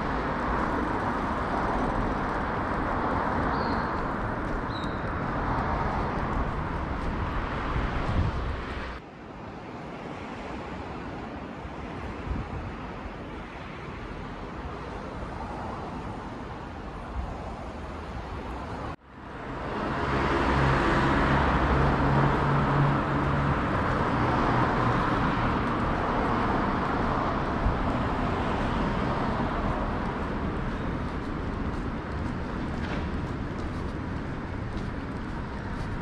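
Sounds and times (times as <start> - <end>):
road traffic noise: 0.0 - 36.0
vehicle engine hum: 19.0 - 36.0.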